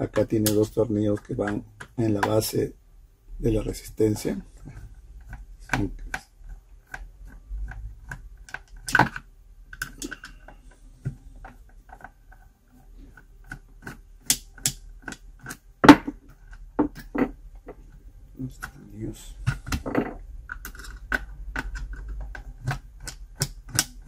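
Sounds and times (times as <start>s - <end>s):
metal tool clicking and tapping: 19.7s - 24.0s.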